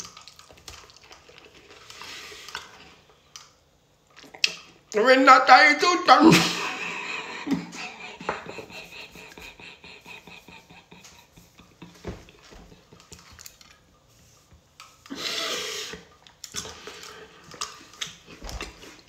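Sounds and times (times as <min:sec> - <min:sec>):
man laughing breathily: 0:06.3 - 0:13.0.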